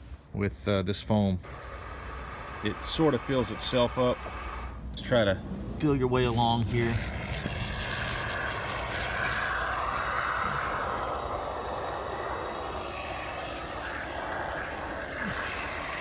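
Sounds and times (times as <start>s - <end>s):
aerosol foam can hissing: 7.4s - 16.0s.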